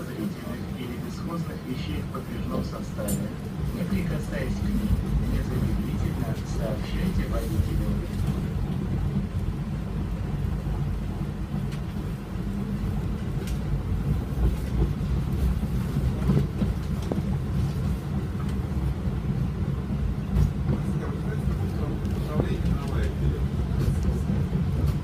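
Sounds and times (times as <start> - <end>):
tram rumbling along track: 0.0 - 25.0.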